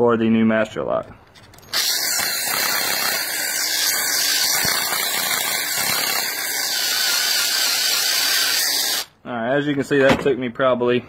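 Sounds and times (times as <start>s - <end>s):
power drill drilling metal: 1.6s - 9.1s.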